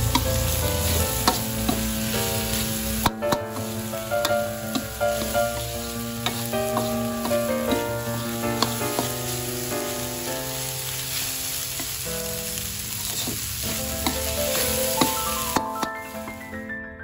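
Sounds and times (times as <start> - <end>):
spatula clicking on pan: 0.0 - 1.9, 3.0 - 7.9, 8.6 - 9.2
metal spatula scraping wok: 0.0 - 10.3, 12.8 - 15.8
chili paste sizzling in a wok: 0.0 - 16.4
background music of held notes: 0.0 - 17.0.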